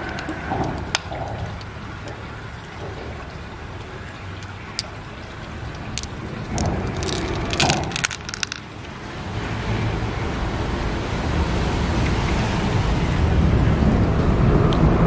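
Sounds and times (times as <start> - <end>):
pearls clicking: 0.0 - 8.7
stream water rushing: 0.0 - 15.0.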